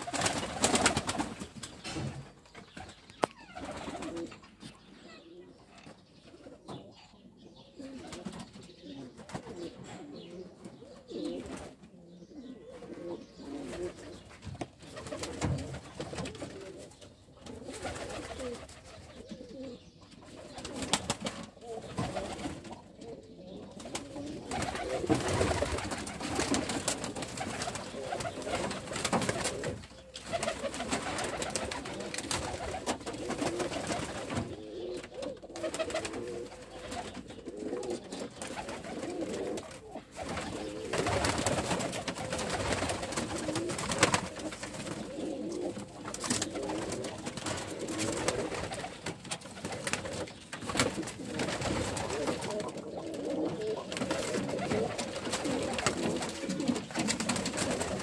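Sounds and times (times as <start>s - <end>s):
pigeons cooing: 0.0s - 58.0s.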